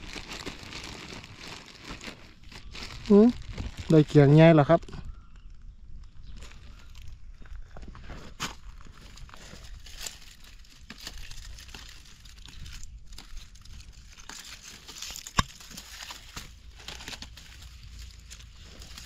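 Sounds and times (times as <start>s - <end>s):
dry grass and leaves rustling: 0.0s - 19.0s
stem snapping: 15.0s - 17.3s.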